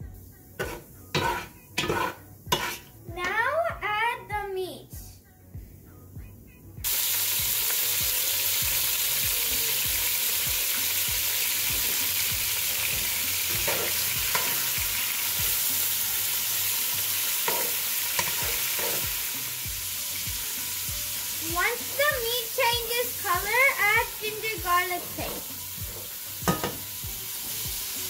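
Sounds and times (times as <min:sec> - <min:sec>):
meat sizzling in hot oil: 0:06.8 - 0:28.0.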